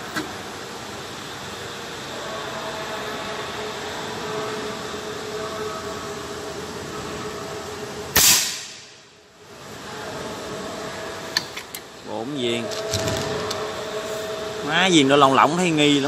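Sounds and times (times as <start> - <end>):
steady background hum: 0.0 - 16.0
air rifle shot crack: 8.2 - 8.8.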